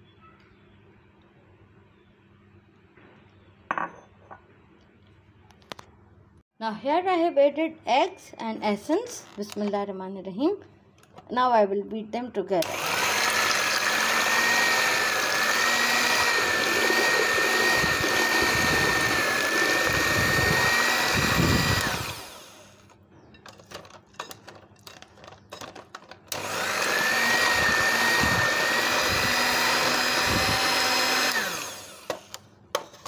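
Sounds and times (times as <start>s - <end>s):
electric hand mixer whining: 12.6s - 22.9s, 26.3s - 32.4s.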